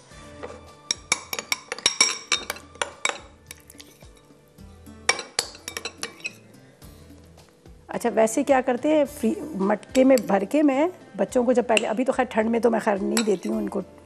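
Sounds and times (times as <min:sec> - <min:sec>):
soft background music: 0:00.0 - 0:14.0
metal spoon clinking against glass: 0:00.9 - 0:04.3, 0:05.1 - 0:06.4, 0:13.1 - 0:13.7.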